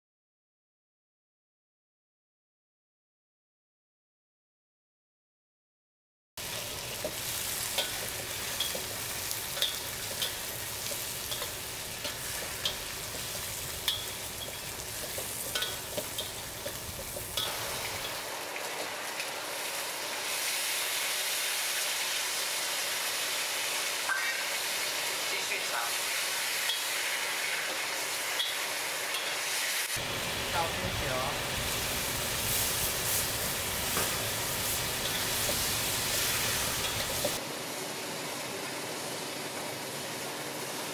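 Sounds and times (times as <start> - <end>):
meat sizzling in oil: 6.4 - 40.9
metal spatula scraping wok: 32.4 - 37.4.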